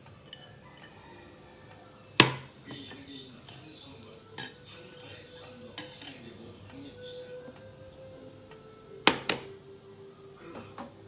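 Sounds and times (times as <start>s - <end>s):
chopsticks clicking on a plate: 2.2s - 6.9s.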